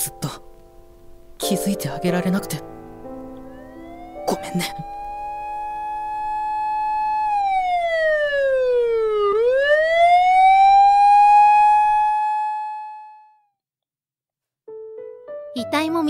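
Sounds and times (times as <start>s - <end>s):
police siren wailing: 3.4s - 13.5s.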